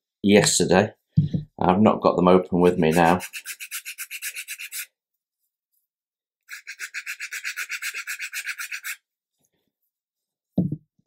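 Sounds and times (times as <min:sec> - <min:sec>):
hand file scratching wood: 0:02.7 - 0:04.9, 0:06.5 - 0:09.0.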